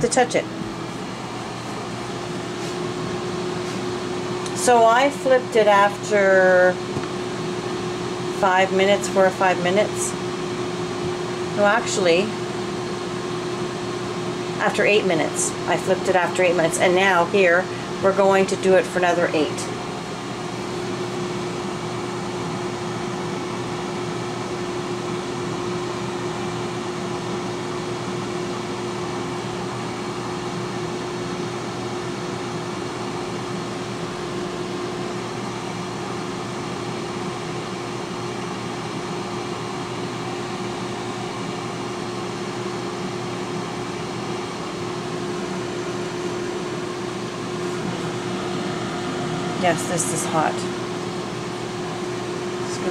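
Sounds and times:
constant hum: 0:00.0 - 0:23.2, 0:43.6 - 0:52.9
air fryer fan whooshing: 0:00.0 - 0:52.9.

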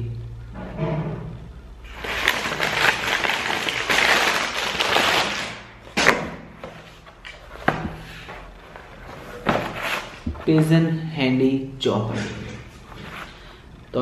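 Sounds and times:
paper bag crinkling and rustling: 0:01.9 - 0:05.7.

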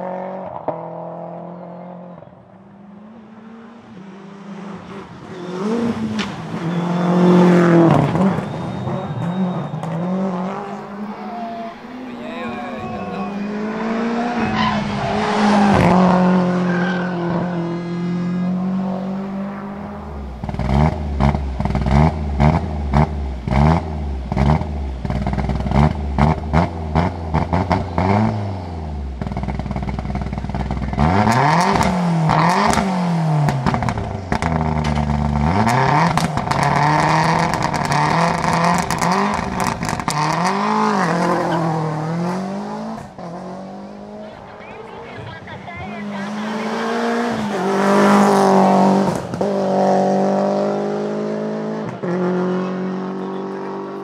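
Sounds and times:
rally car driving past: 0:00.0 - 0:22.4
engine revving: 0:03.0 - 0:54.0
exhaust cracks and pops: 0:33.5 - 0:40.4.

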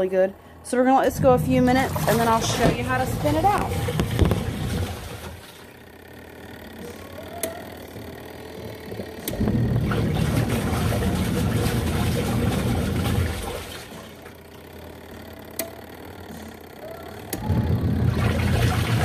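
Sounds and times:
washing machine motor churning: 0:00.0 - 0:19.0
water and clothes sloshing: 0:01.1 - 0:05.7, 0:09.8 - 0:14.3, 0:18.1 - 0:19.0.

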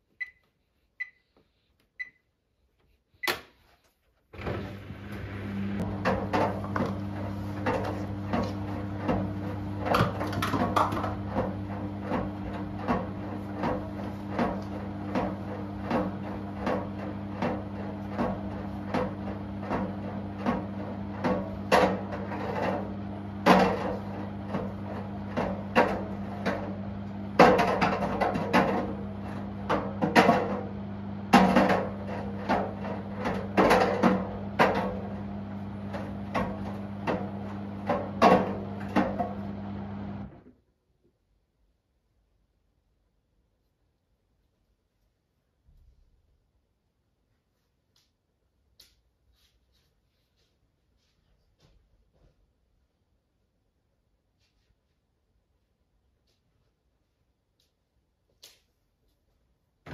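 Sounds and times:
washing machine drum turning: 0:04.4 - 0:40.3.

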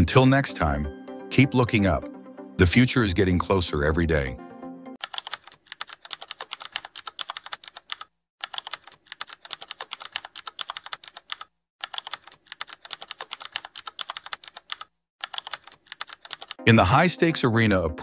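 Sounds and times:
computer keyboard typing: 0:05.0 - 0:16.6.

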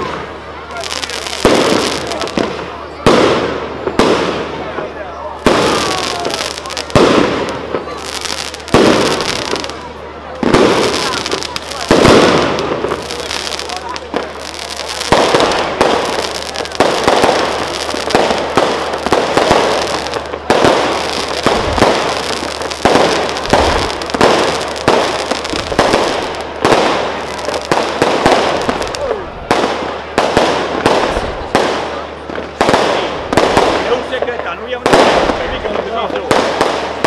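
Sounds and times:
firework shells bursting: 0:05.4 - 0:29.0.

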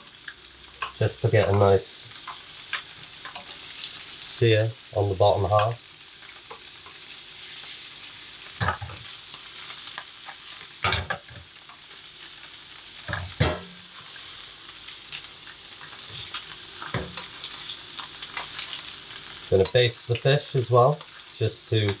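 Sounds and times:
fish sizzling in a frying pan: 0:00.0 - 0:22.0.

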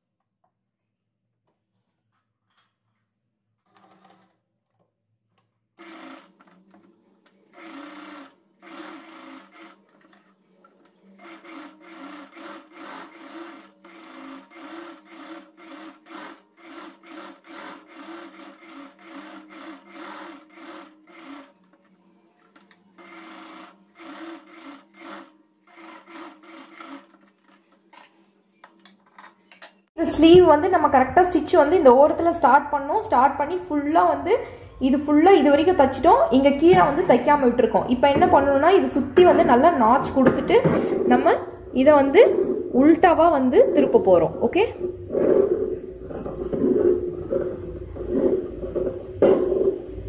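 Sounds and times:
sewing machine stitching: 0:03.7 - 0:04.3, 0:05.8 - 0:21.8, 0:22.4 - 0:28.1.

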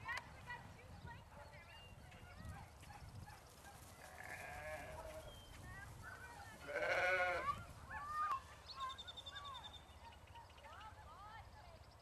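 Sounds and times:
sheep bleating: 0:04.1 - 0:05.1, 0:06.6 - 0:07.5.

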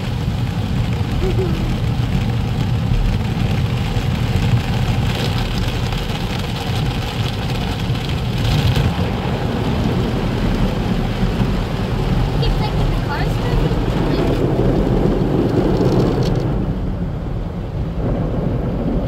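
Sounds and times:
car wash brushes rumbling: 0:00.0 - 0:19.0.

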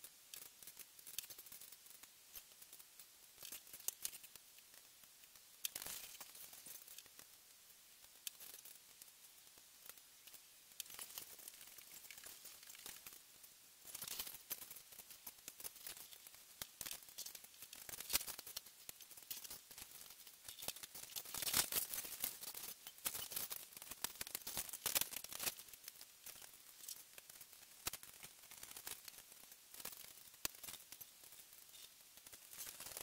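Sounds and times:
paper and plastic rustling: 0:13.9 - 0:25.7.

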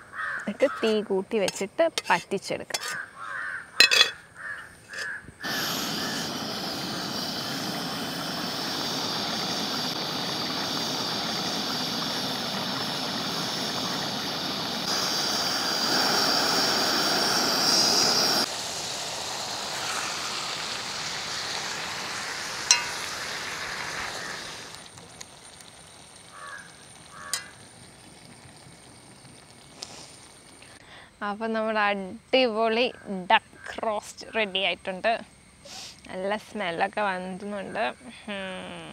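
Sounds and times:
spoon clinking against pot: 0:03.8 - 0:04.2
gravy bubbling and sizzling: 0:03.9 - 0:30.8
gas burner roaring: 0:05.4 - 0:30.8.

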